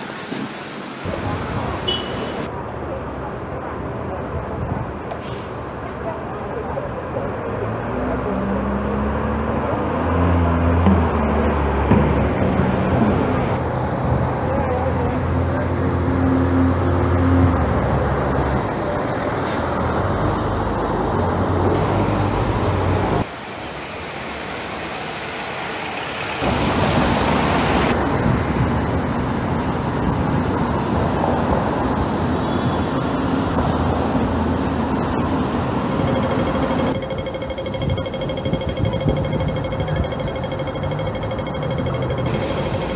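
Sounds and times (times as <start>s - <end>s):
street traffic noise: 0.0s - 42.9s
diesel bus engine running: 11.2s - 30.6s
steady high whine: 21.7s - 28.0s, 35.8s - 42.9s.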